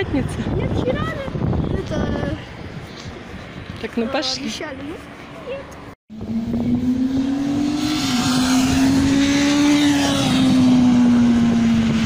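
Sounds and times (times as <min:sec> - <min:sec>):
vehicle engine drone: 0:05.3 - 0:12.0.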